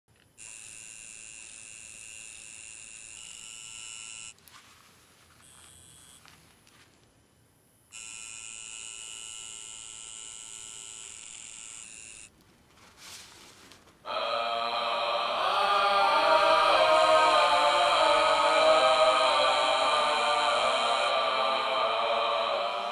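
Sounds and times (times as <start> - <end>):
tattoo machine buzzing: 0.4 - 4.4, 5.4 - 6.3, 7.9 - 12.3
loud music with chanting voices: 14.1 - 22.9.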